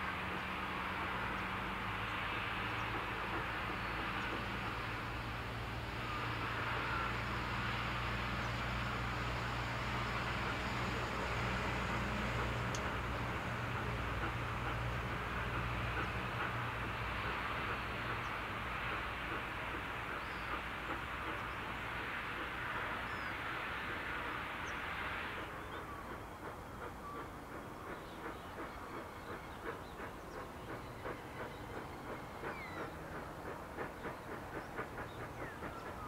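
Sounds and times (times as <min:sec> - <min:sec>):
loud steam hiss: 0:00.0 - 0:36.0
steam locomotive exhaust chuffs: 0:00.0 - 0:36.0.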